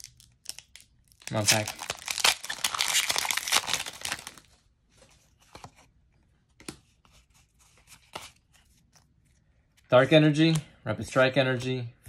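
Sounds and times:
foil wrapper tearing open: 0:00.0 - 0:04.4.

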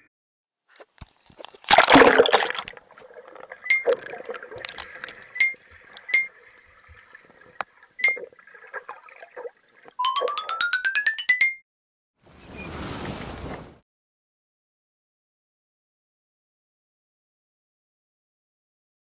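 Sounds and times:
loud splash into water: 0:01.7 - 0:02.7
sharp ringing clicks: 0:03.6 - 0:06.3.

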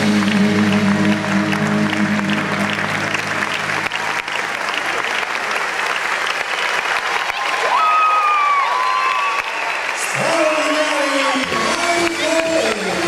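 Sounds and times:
music: 0:00.0 - 0:05.0, 0:11.3 - 0:13.0
audience applauding: 0:00.0 - 0:13.0.

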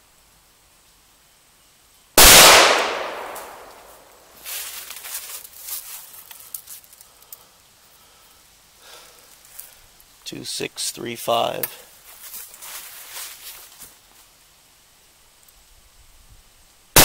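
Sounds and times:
rifle shot: 0:02.2 - 0:04.1.

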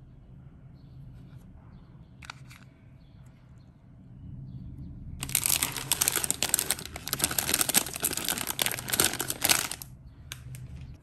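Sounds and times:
plastic packaging crinkling: 0:05.2 - 0:10.6.

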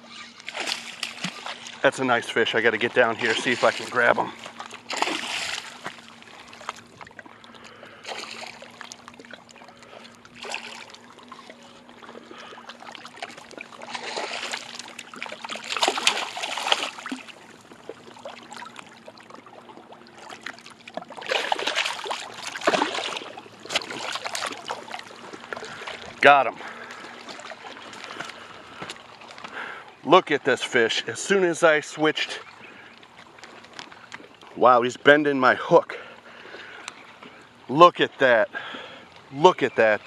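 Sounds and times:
fish splashing in water: 0:00.0 - 0:01.8, 0:03.1 - 0:29.7.

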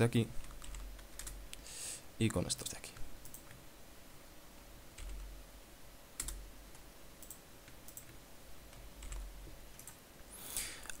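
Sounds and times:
computer mouse and keyboard clicks: 0:06.2 - 0:10.0.

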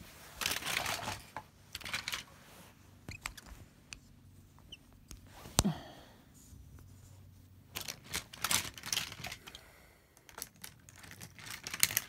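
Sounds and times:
plastic toys rustling on fabric: 0:00.0 - 0:04.5, 0:06.3 - 0:09.6, 0:10.3 - 0:12.0
toys clicking together: 0:10.2 - 0:12.0.

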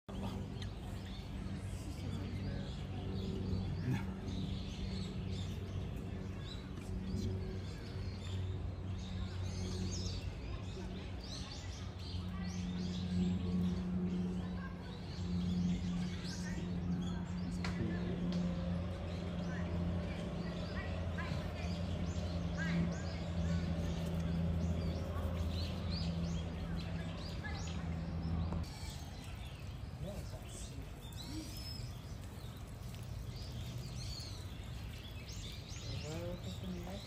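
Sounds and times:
small birds chirping: 0:00.0 - 0:37.0.

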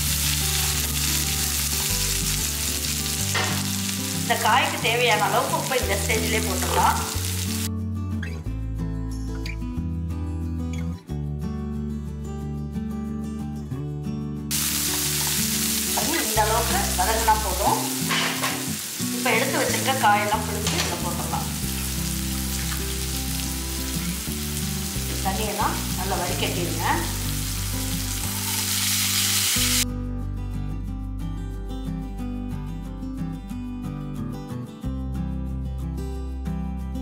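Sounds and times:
onions sizzling in oil: 0:00.0 - 0:07.7, 0:14.5 - 0:29.8
soft background music: 0:00.0 - 0:37.0.

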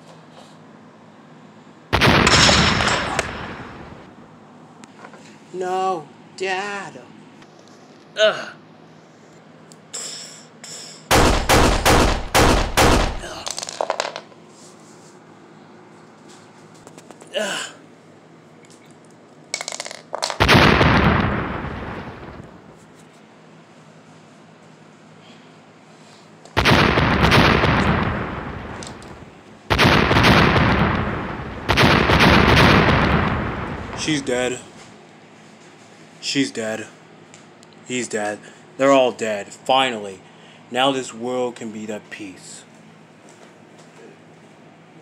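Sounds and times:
loud gunshots: 0:01.9 - 0:04.1, 0:11.1 - 0:13.4, 0:20.4 - 0:22.4, 0:26.6 - 0:28.9, 0:29.7 - 0:34.2.

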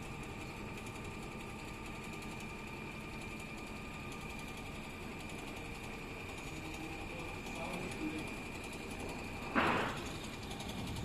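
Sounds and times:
sewing machine clattering: 0:04.0 - 0:11.0.

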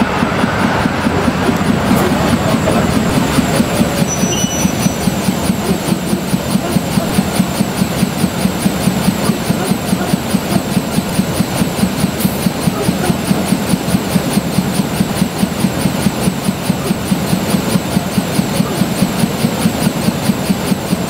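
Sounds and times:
diesel locomotive engine idling: 0:00.0 - 0:21.0.

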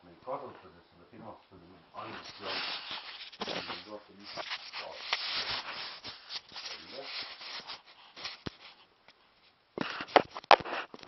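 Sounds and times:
microphone rubbing on clothing: 0:02.0 - 0:08.9, 0:09.8 - 0:11.0.

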